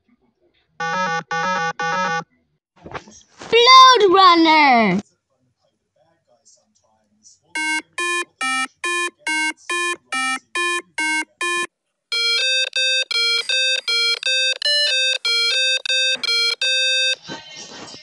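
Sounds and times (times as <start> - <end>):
electronic beeping melody: 7.6 - 17.2.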